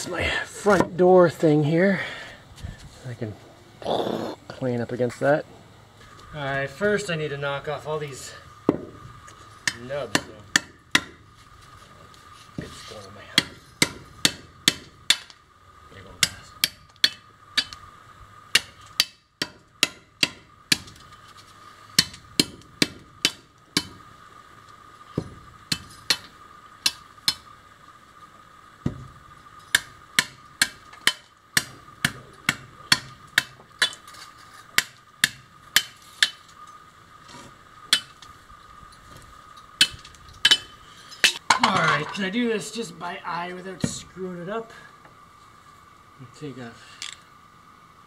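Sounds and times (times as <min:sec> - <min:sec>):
machete chopping wood: 0:13.4 - 0:15.3, 0:18.5 - 0:21.1, 0:22.0 - 0:24.0, 0:29.7 - 0:34.0, 0:34.7 - 0:36.4.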